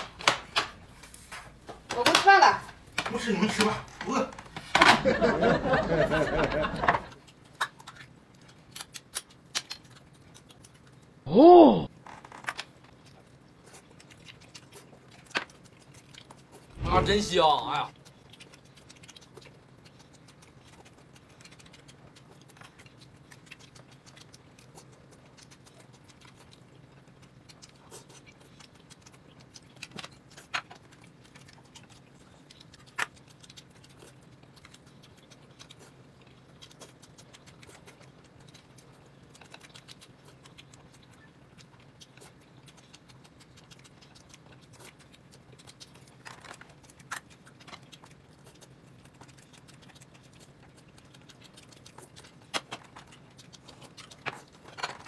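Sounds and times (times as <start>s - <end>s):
steady low hum: 15.6s - 18.4s.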